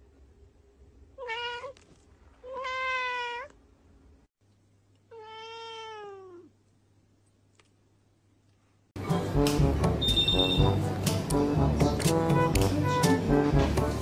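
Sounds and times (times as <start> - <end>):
cat meowing: 1.2 - 1.8, 2.4 - 3.6, 5.1 - 6.5.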